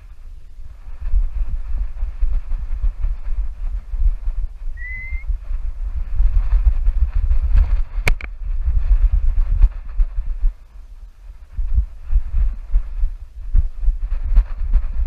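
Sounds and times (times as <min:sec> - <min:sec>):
wind buffeting microphone: 0:00.0 - 0:15.0
short rising whistle: 0:04.8 - 0:05.3
sharp click on camera: 0:08.0 - 0:08.4.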